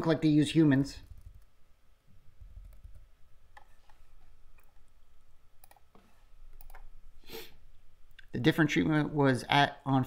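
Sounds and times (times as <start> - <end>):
keyboard and mouse clicks: 2.4 - 4.8, 5.6 - 6.9.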